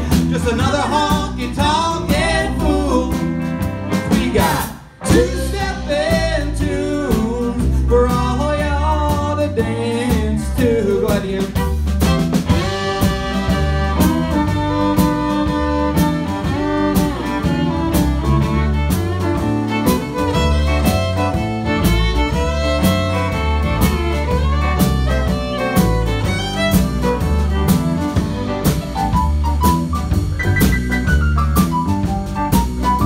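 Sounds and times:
live country band playing: 0:00.0 - 0:33.0
fiddle: 0:10.9 - 0:33.0.

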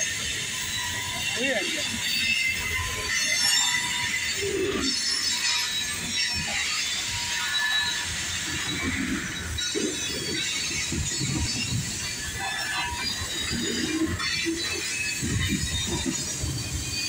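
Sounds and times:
freight train cars rumbling: 0:00.0 - 0:17.0
high-pitched wheel squeals: 0:00.0 - 0:17.0.

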